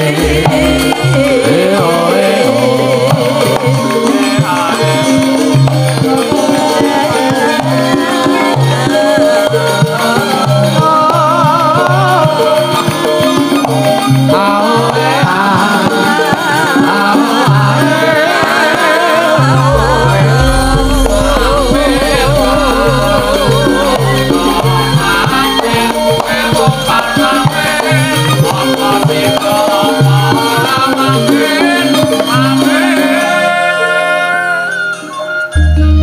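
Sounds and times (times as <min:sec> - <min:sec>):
gamelan playing low notes: 0:00.1 - 0:03.9, 0:19.4 - 0:29.8
woman singing ornamented melody: 0:00.1 - 0:05.0, 0:14.8 - 0:30.1.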